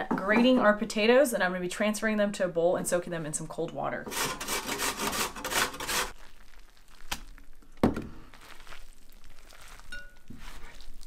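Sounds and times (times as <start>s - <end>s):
potato rasping on grater: 4.1s - 6.2s.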